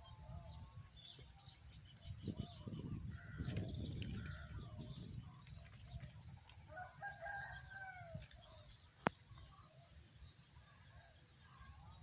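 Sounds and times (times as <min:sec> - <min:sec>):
rooster crowing: 0:06.7 - 0:08.2.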